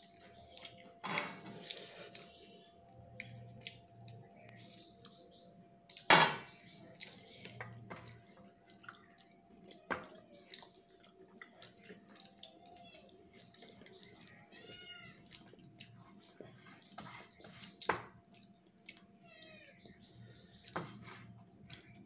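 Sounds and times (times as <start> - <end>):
cat meowing faintly: 19.2 - 19.8.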